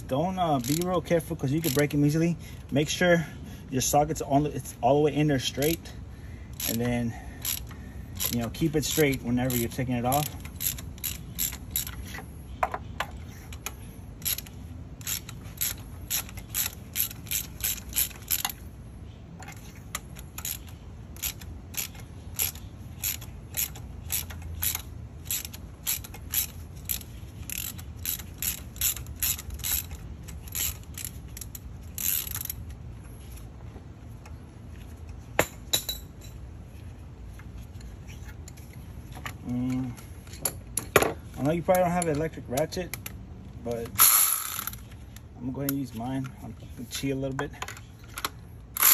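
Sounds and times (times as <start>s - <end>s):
hand ratchet clicking: 0.3s - 2.2s, 6.5s - 12.1s, 13.5s - 18.6s, 19.4s - 32.8s, 43.8s - 46.0s, 48.2s - 48.9s.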